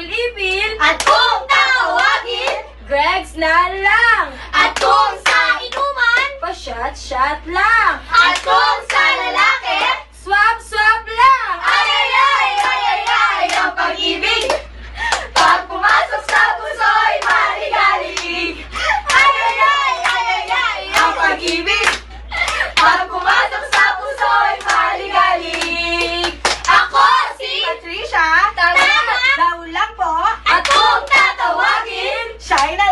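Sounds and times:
women singing together: 0:00.0 - 0:32.9
hand claps: 0:12.6 - 0:13.7, 0:19.1 - 0:24.9, 0:25.5 - 0:26.8, 0:30.6 - 0:31.3.

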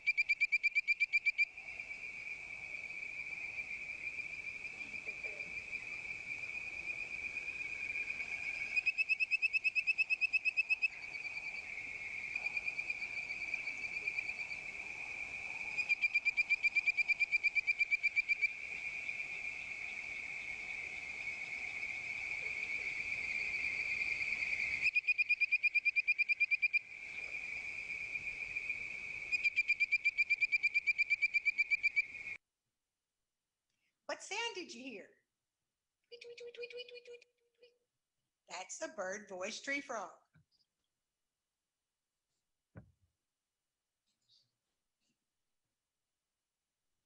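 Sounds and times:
high-pitched frog chorus: 0:00.0 - 0:32.4, 0:36.1 - 0:37.2
treefrogs whistled tweet calls: 0:00.0 - 0:32.4.

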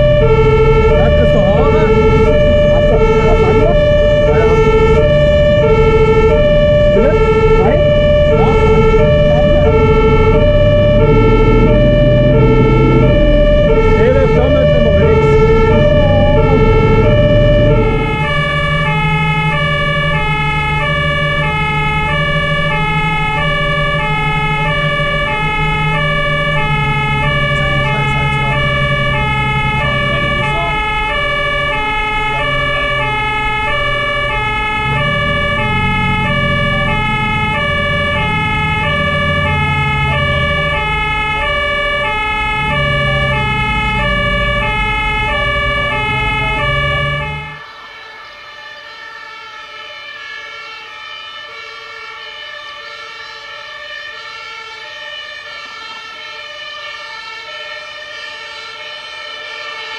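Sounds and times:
diesel truck engine running: 0:00.0 - 0:47.6
two-tone fire engine siren: 0:00.0 - 0:59.9.

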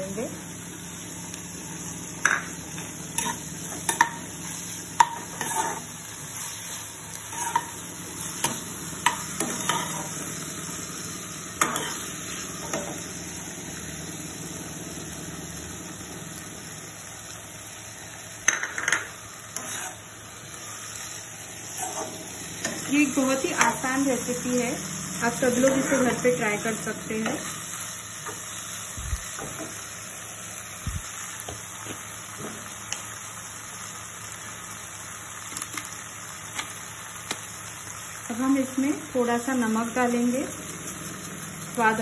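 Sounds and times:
faint sizzle: 0:00.0 - 0:42.0
metal ladle scraping a pan: 0:19.6 - 0:20.1, 0:21.7 - 0:22.2.

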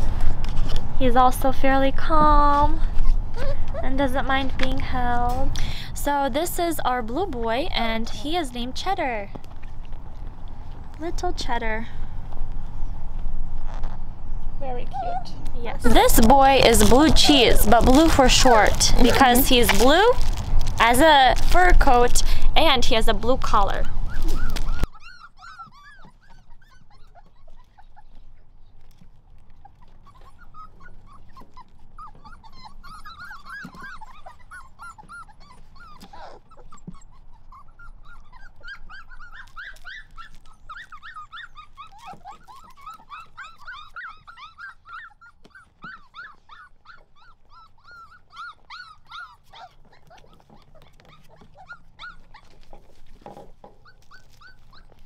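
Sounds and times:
puppies whimpering: 0:02.4 - 0:04.6, 0:14.8 - 0:55.0.

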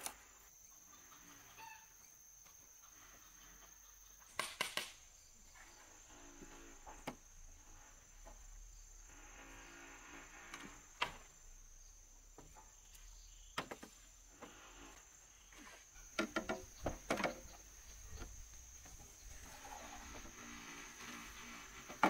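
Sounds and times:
bamboo poles knocking: 0:16.1 - 0:19.0.

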